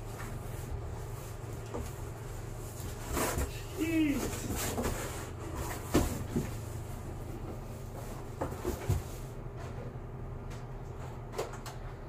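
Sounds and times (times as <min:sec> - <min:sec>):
low room hum: 0:00.0 - 0:12.0
cardboard box knocks and scrapes: 0:04.2 - 0:06.6, 0:08.4 - 0:09.2.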